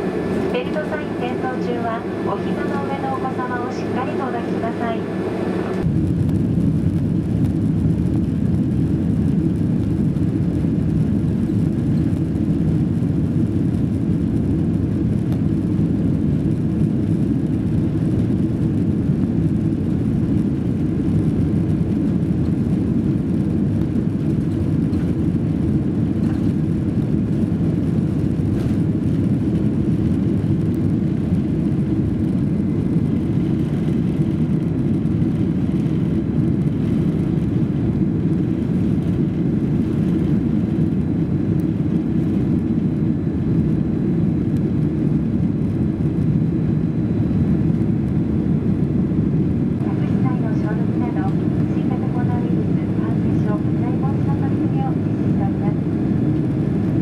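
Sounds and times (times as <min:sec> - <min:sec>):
jet engines deep rumble: 0:00.0 - 0:57.0.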